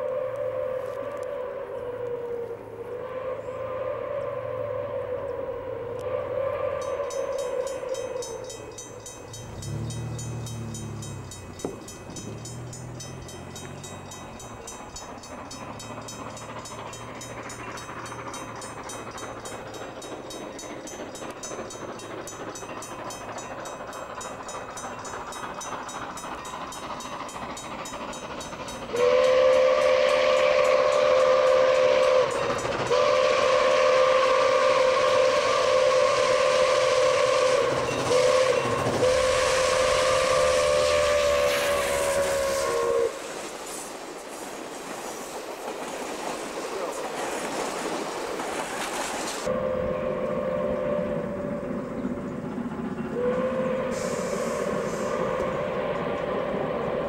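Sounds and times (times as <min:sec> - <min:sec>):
steam whistle blasts: 0:00.0 - 0:08.7, 0:28.9 - 0:43.4, 0:49.4 - 0:52.0, 0:53.1 - 0:57.0
approaching train: 0:00.0 - 0:57.0.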